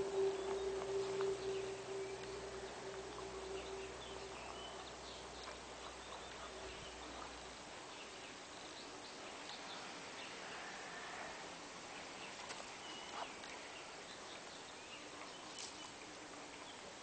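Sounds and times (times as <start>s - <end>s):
faint bird chirps: 0.0s - 8.9s
steady hum: 0.0s - 9.4s.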